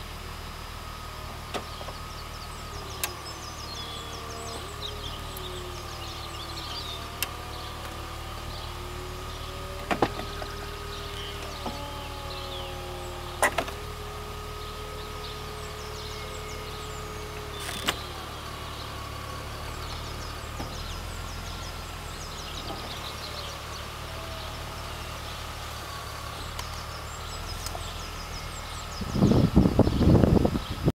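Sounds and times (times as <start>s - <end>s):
convertible roof motor whine: 0.0s - 30.9s
small birds chirping: 0.2s - 30.9s
roof locking click: 13.4s - 13.8s, 17.6s - 18.0s.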